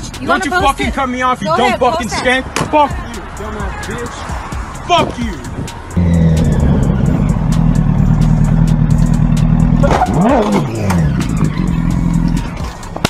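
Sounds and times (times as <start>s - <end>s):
motorcycle engine running: 6.0s - 13.0s.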